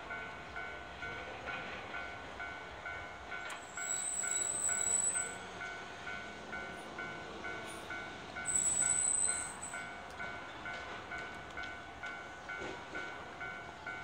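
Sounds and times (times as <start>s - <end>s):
train squeal: 3.4s - 11.0s
level crossing bell ringing: 8.5s - 10.0s.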